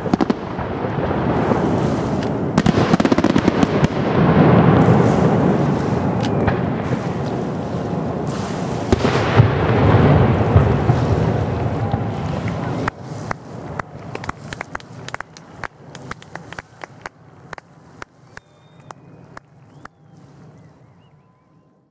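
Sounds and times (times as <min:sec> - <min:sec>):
scattered single claps: 0:13.3 - 0:20.0
crowd applauding and cheering: 0:14.1 - 0:21.5.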